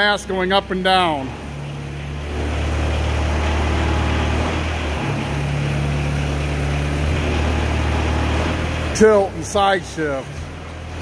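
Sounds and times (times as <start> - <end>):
diesel engine running: 0.0 - 11.0
forklift hydraulics: 1.4 - 9.5.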